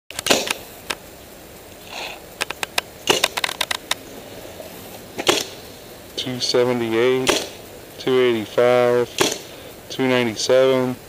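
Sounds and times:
paintball marker pops: 0.2 - 0.6, 5.2 - 5.6, 7.2 - 7.6, 9.2 - 9.5.

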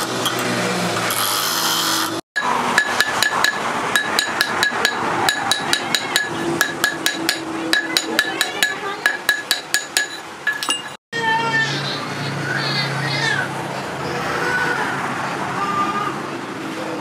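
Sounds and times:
bench grinding wheel: 0.0 - 11.0
hammer tapping on metal: 2.4 - 11.0.

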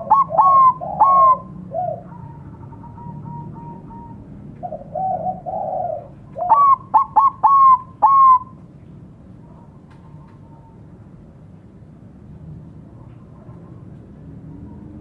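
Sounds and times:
dove cooing: 0.0 - 8.6.

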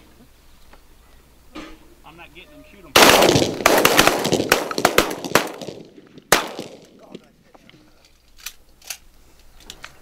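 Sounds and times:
shotgun shots: 3.0 - 7.1.

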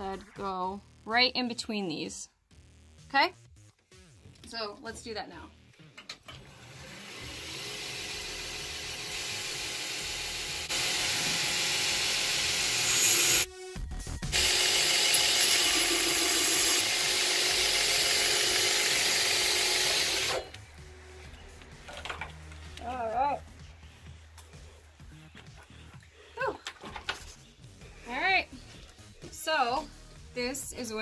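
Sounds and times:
belt grinder motor hum: 6.4 - 13.5, 14.3 - 20.6.

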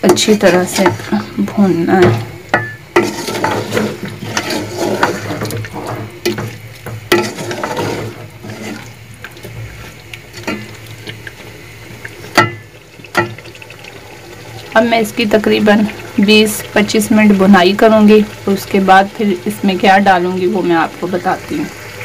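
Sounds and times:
wooden spoon scraping metal pot: 0.0 - 11.4
food frying in pot: 0.0 - 22.0.

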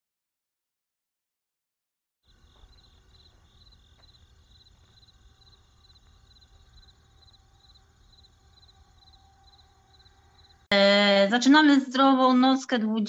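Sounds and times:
crickets chirping: 2.2 - 10.7
low hum: 2.3 - 10.7.

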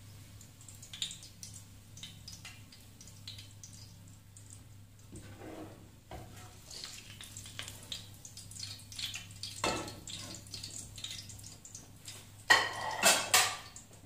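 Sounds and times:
hot oil sizzling and crackling: 0.0 - 14.0.

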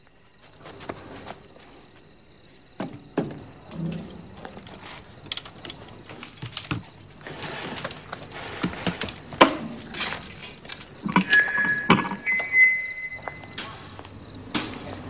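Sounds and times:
hiss: 13.6 - 15.0.

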